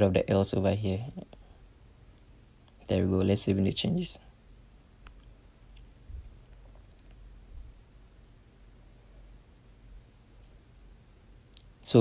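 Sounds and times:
high-pitched whine: 0.0 - 1.6
faint low hum: 0.0 - 12.0.

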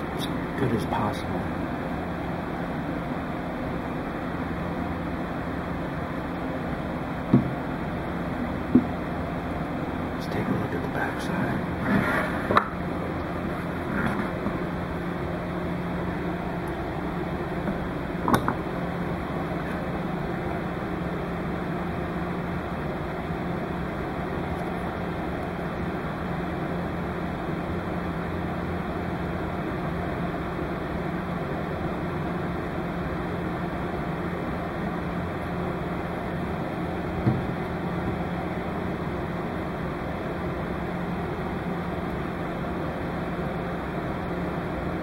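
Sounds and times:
steady hiss with low hum: 0.0 - 45.0
brief knock: 7.3 - 7.6.

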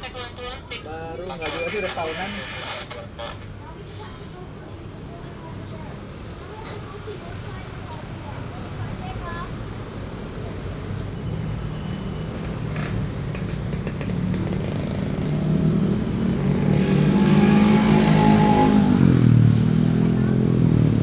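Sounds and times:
engine passing close by: 12.8 - 21.0.

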